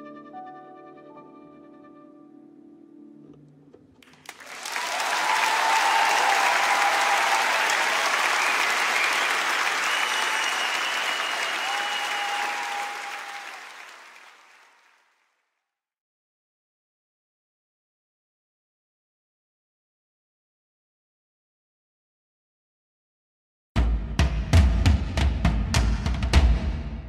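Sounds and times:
crowd cheering: 0:04.0 - 0:15.2
crowd applauding: 0:04.0 - 0:15.3.

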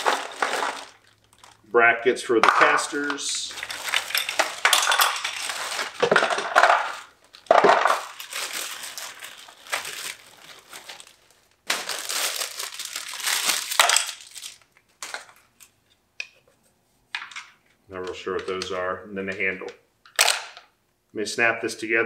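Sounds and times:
plastic bag crinkling: 0:00.0 - 0:01.7, 0:02.6 - 0:15.7.

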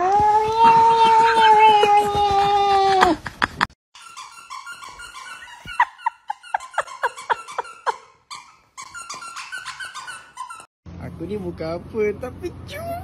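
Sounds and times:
dog whining: 0:04.0 - 0:10.7.

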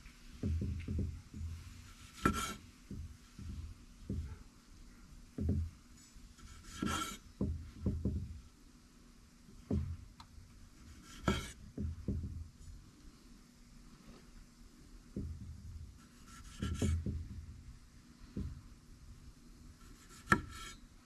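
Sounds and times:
knife cutting on board: 0:02.0 - 0:02.6, 0:06.4 - 0:07.2, 0:10.8 - 0:11.6, 0:16.0 - 0:17.1, 0:19.8 - 0:20.8.

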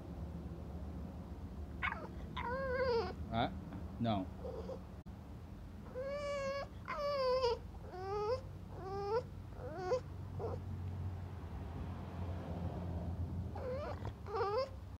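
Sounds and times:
dog whining: 0:01.8 - 0:03.3, 0:04.4 - 0:04.9, 0:05.8 - 0:10.6, 0:13.5 - 0:15.0.

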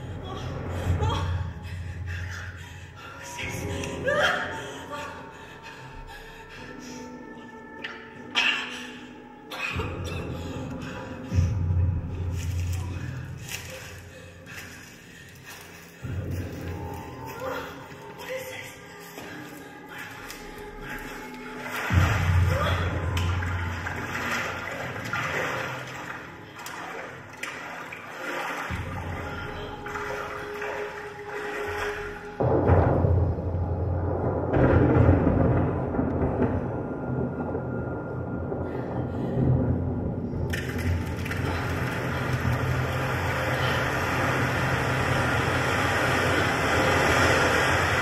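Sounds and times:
low steady hum: 0:18.8 - 0:48.0
rushing water-like noise: 0:20.0 - 0:32.7, 0:40.5 - 0:48.0.

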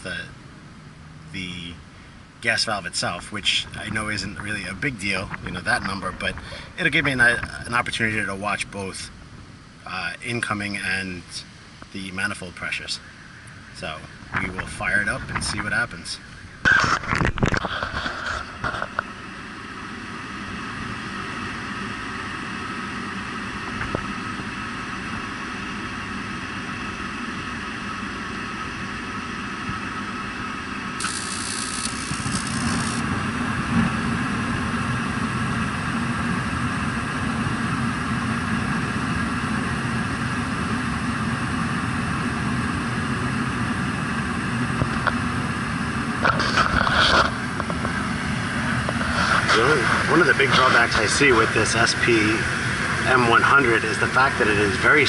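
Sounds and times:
deep burner rumble: 0:00.0 - 0:55.0
motor and fan hum: 0:00.0 - 0:55.0.

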